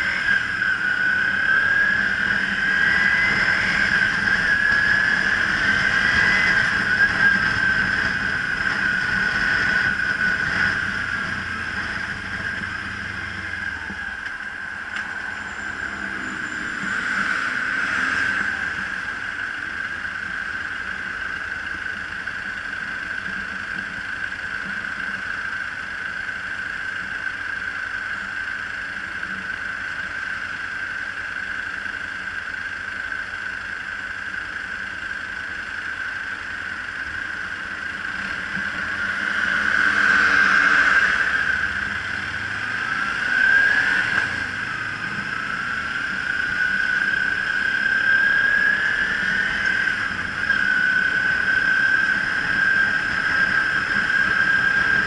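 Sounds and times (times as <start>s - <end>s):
high-pitched whine: 0.0s - 55.0s
motorcycle engine idling: 18.5s - 39.2s.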